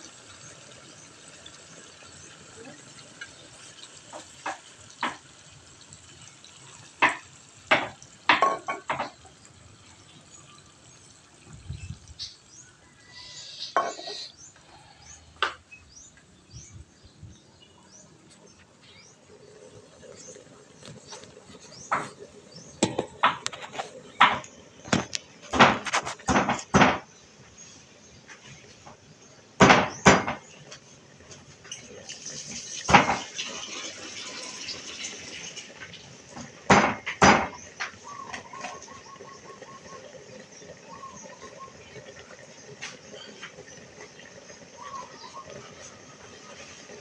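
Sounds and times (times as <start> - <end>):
fish sizzling in oil: 0.0 - 16.5, 18.2 - 47.0
kitchen items knocking and clattering: 7.0 - 9.2, 22.8 - 27.1, 29.6 - 30.5, 32.8 - 33.5, 36.4 - 38.0.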